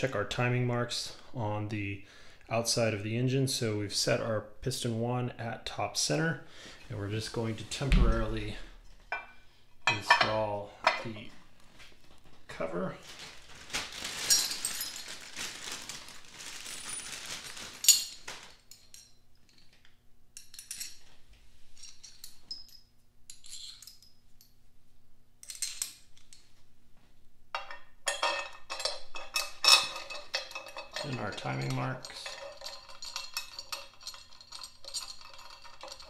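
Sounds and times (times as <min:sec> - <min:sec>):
metal clinking and scraping: 0:20.4 - 0:24.6, 0:27.6 - 0:36.0.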